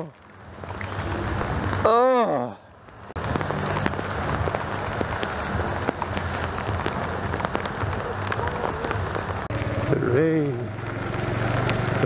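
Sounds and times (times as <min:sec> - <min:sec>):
rain hitting camera case: 0:00.1 - 0:01.9, 0:02.8 - 0:10.0, 0:10.6 - 0:12.0
motorcycle engine running: 0:03.2 - 0:12.0.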